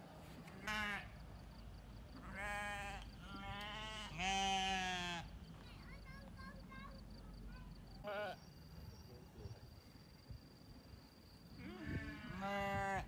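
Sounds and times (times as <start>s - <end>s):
sheep bleating: 0.6s - 1.1s, 2.2s - 5.3s, 11.6s - 13.0s.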